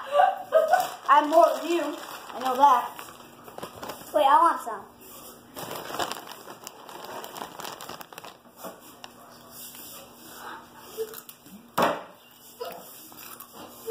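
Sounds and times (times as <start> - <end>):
rustling and handling noises: 0.5 - 11.4.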